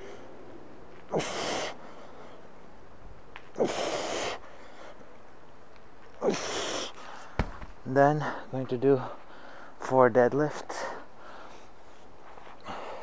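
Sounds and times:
man exhaling forcefully: 0:01.1 - 0:01.8.

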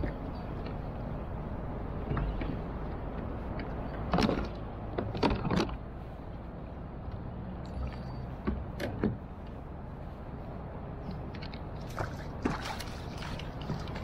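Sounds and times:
wind: 0:00.0 - 0:14.0
water noise: 0:10.1 - 0:14.0.

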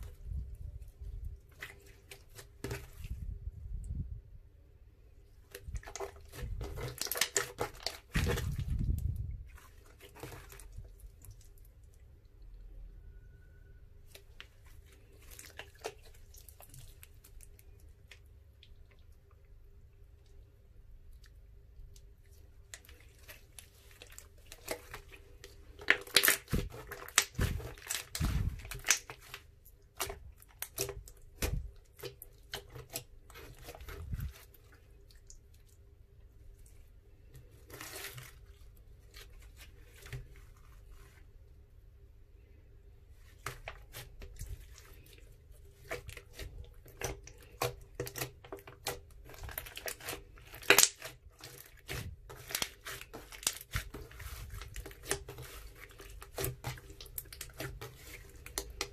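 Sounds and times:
slime crackling and popping: 0:05.5 - 0:08.8, 0:22.6 - 0:34.5, 0:45.8 - 0:58.9.

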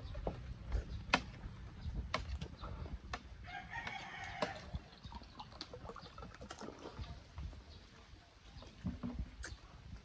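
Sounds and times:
rooster crowing: 0:03.4 - 0:04.7.

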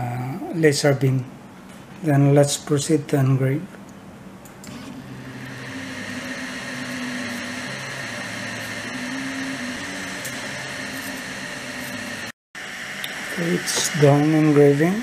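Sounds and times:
steady machine whir: 0:04.7 - 0:15.0
stepper motors whining: 0:04.7 - 0:15.0.

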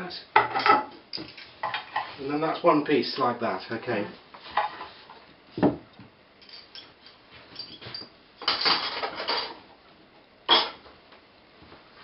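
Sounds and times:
parts rattling on worktop: 0:07.6 - 0:09.6.

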